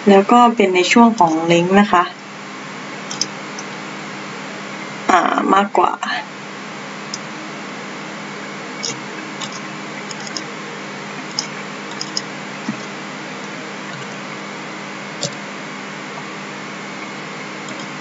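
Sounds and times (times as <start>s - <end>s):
microphone hiss and hum: 0.0s - 18.0s
keyboard keystrokes: 3.1s - 3.7s, 11.3s - 12.9s, 17.7s - 18.0s.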